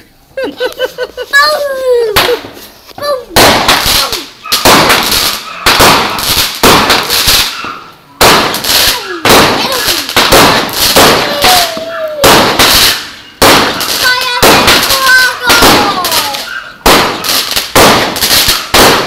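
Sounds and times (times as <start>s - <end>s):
fireworks bangs: 1.3s - 19.0s
crackle of sparks: 3.4s - 7.6s, 8.2s - 19.0s.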